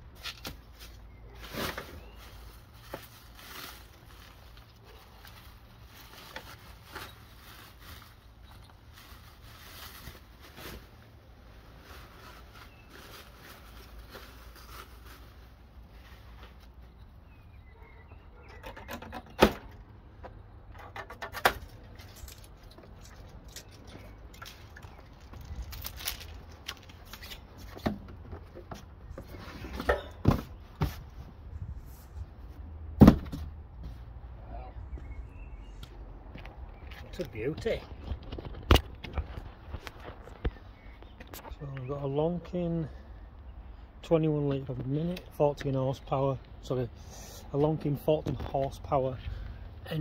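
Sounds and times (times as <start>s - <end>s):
plastic wrap rustling: 1.6s - 16.0s
loud thump: 33.0s - 33.5s.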